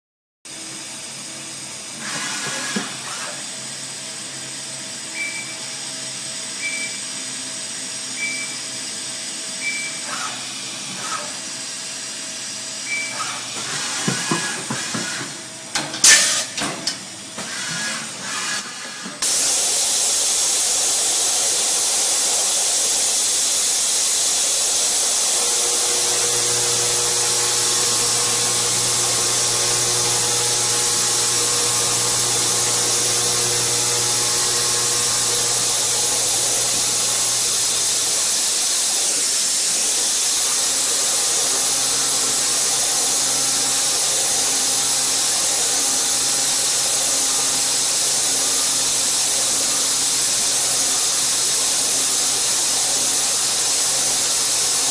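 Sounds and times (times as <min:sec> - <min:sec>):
loud steady hiss: 0:19.2 - 0:54.9
low cutting hum: 0:25.3 - 0:38.4.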